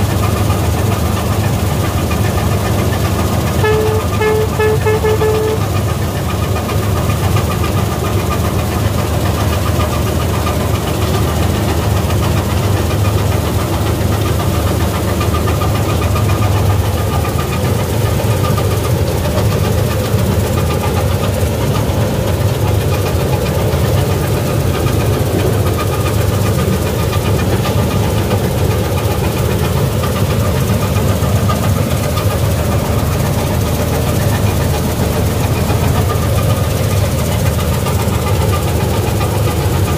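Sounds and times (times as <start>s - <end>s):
combine harvester engine rumble: 0.0s - 39.9s.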